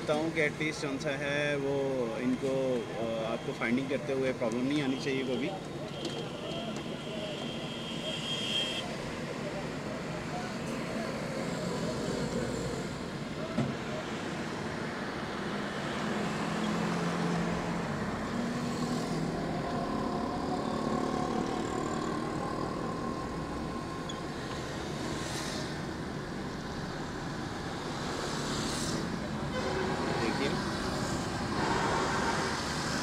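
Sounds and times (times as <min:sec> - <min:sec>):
bus engine: 0:09.2 - 0:33.0.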